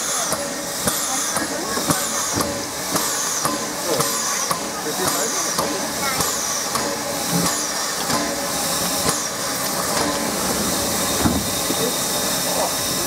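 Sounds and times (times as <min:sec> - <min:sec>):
steam locomotive hissing steam: 0:00.0 - 0:13.0.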